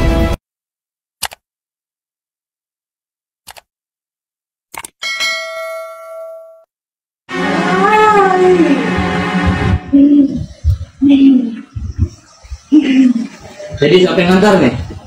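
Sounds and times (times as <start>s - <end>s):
bell-like notification ding: 5.0s - 6.7s.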